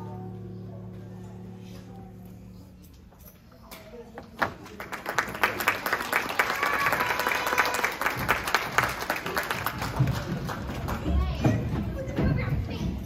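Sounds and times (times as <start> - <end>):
audience applauding: 4.4 - 11.4.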